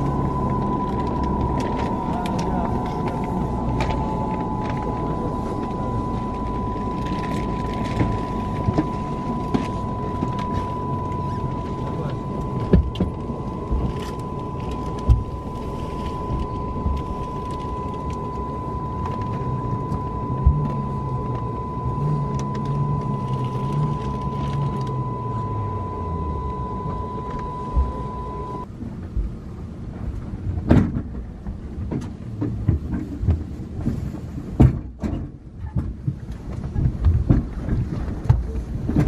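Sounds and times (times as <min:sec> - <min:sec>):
low drone falling in pitch: 0:00.0 - 0:28.7
high steady whine: 0:00.0 - 0:29.6
aircraft systems hum: 0:00.0 - 0:30.6.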